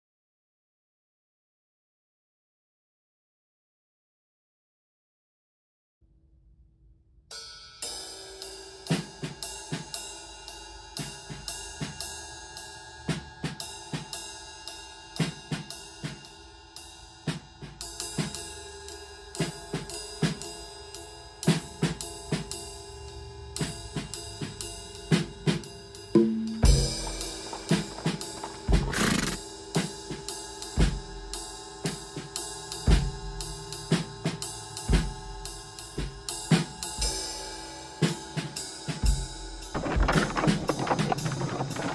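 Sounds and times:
drum kit playing: 25.1 - 30.2, 30.8 - 32.0, 32.8 - 37.3.

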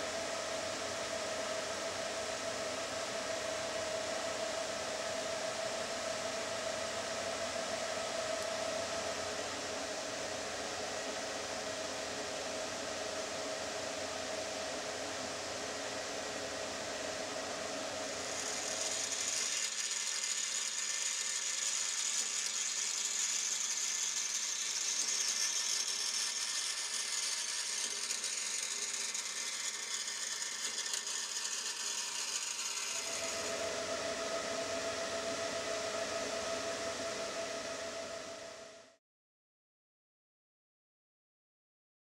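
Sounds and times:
band saw hum: 15.6 - 39.0
band saw cutting metal: 18.2 - 38.2.

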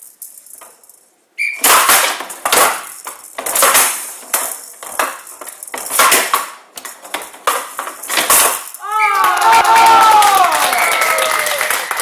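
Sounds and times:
bead-filled ball rattling: 0.0 - 8.8
ball clattering against bats: 0.0 - 9.4.

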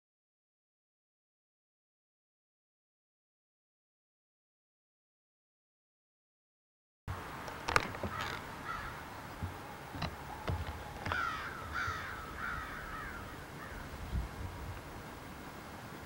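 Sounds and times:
crow cawing: 8.0 - 9.1, 11.0 - 13.9.

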